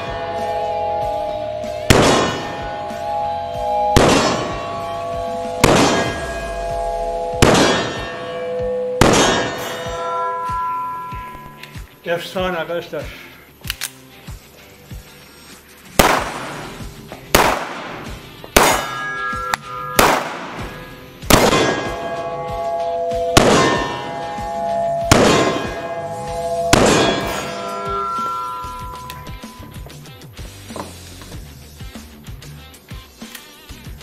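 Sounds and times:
pistol shots echoing indoors: 16.0 - 16.7, 17.4 - 19.0, 20.0 - 22.0, 23.4 - 23.9, 25.0 - 25.8.

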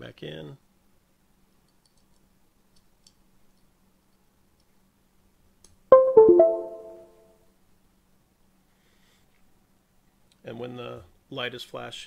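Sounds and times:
three-note computer chime: 5.9 - 7.3.

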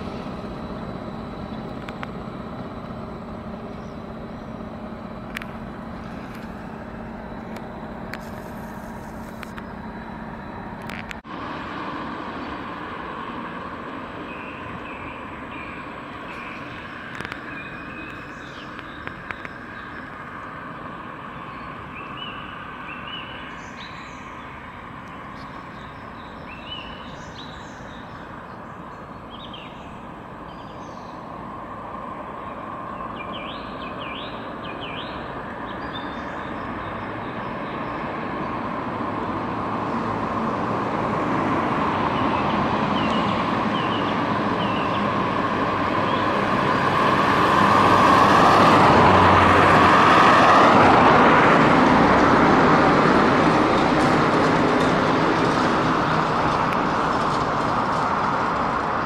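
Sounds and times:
birds chirping: 0.0 - 11.2, 14.2 - 31.4, 32.2 - 38.6, 42.1 - 45.3, 45.9 - 46.5
tram wheels rumbling on rails: 0.0 - 21.2, 22.0 - 59.0
tram whine bending in pitch: 0.0 - 57.2.

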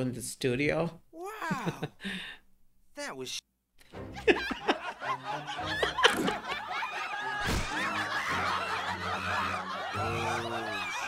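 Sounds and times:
background music: 3.8 - 11.0
cartoon characters laughing: 4.2 - 11.0.

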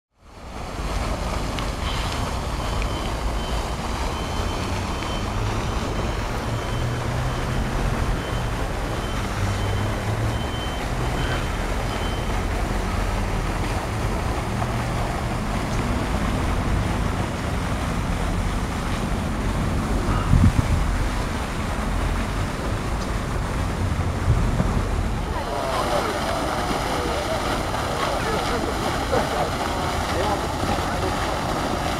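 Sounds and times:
distant road traffic: 0.2 - 31.9
faint high-pitched beeping: 2.8 - 7.6, 8.2 - 12.4
wind on microphone: 19.1 - 25.3.

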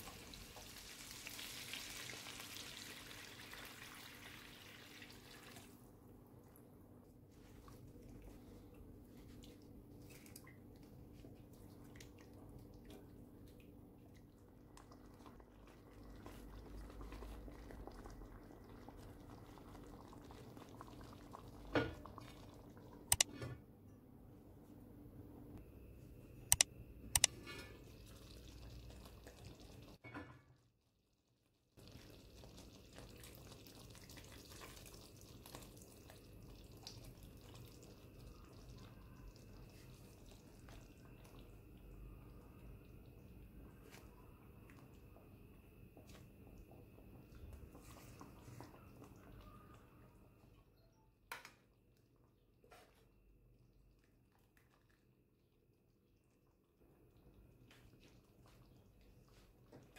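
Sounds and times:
juice trickling into pan: 0.0 - 5.8, 14.2 - 23.1, 27.7 - 30.0, 31.8 - 43.2
broth simmering: 0.0 - 23.3, 27.4 - 30.0, 31.8 - 50.6, 53.3 - 59.9.

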